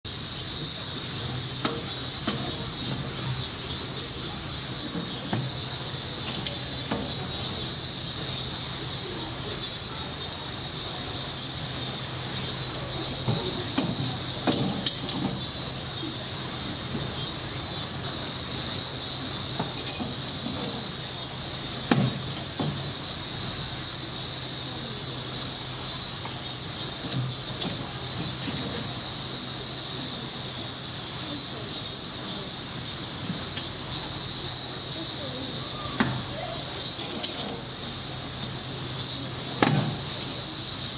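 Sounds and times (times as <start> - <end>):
cicadas buzzing: 0.0 - 40.9.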